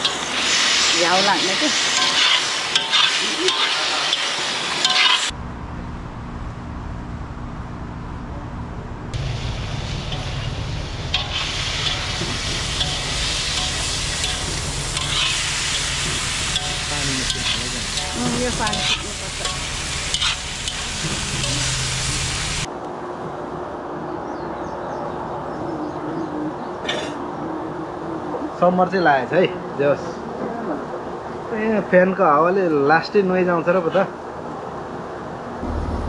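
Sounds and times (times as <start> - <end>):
food sizzling in hot oil: 0.0 - 5.4, 9.2 - 22.7.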